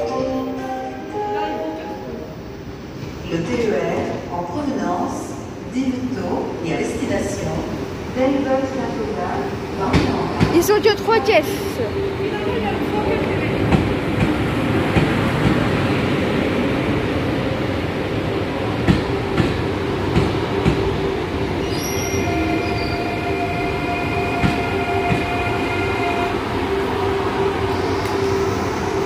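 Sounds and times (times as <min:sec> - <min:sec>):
electric train rumbling: 0:00.0 - 0:29.0
high multi-tone squeal: 0:21.6 - 0:29.0.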